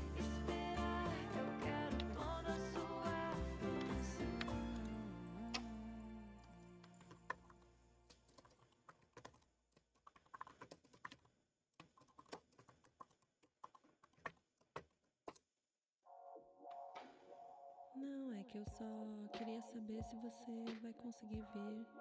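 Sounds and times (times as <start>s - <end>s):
music: 0.0s - 7.9s, 18.3s - 22.0s.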